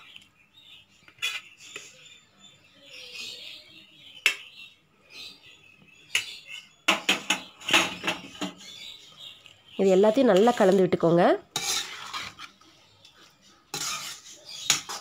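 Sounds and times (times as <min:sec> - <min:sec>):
steel kitchenware clinking: 0:13.7 - 0:15.0.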